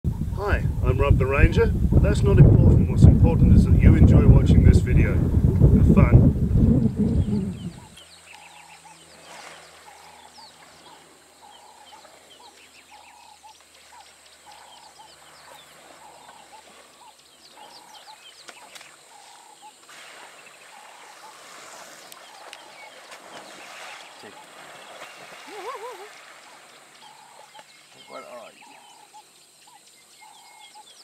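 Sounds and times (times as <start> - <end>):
birds chirping: 0.1 - 31.0
soft water splashing: 3.8 - 29.2.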